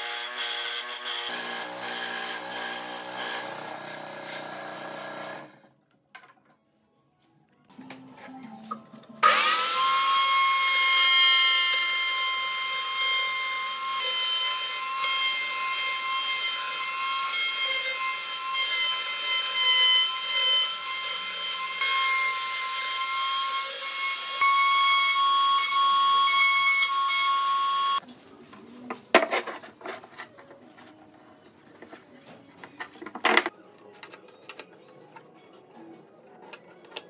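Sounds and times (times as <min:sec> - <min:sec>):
router whining: 0:09.2 - 0:28.0.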